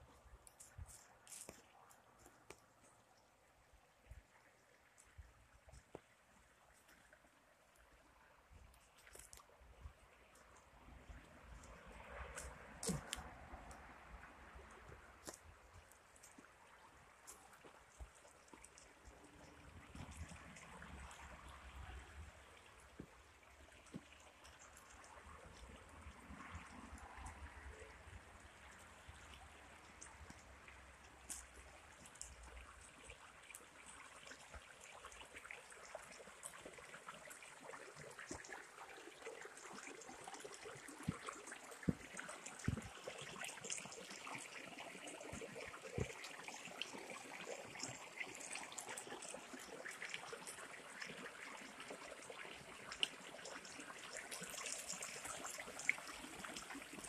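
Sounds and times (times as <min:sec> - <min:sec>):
small stream trickling: 0:00.0 - 0:57.0.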